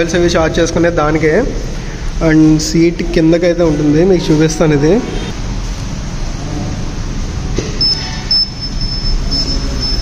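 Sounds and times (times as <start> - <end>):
high-pitched warning beep: 7.8 - 10.0.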